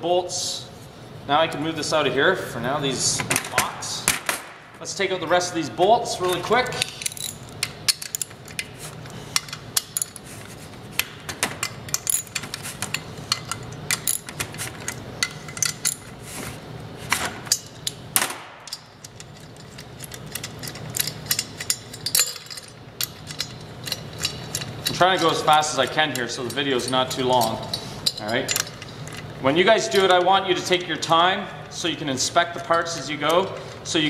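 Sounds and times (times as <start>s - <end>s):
metal clinks of socket and bolts: 6.7s - 8.7s, 11.6s - 16.1s, 18.6s - 25.4s.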